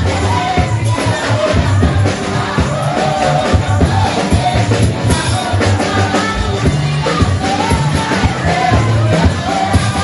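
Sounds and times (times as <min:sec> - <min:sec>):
congregation singing: 0:00.0 - 0:10.0.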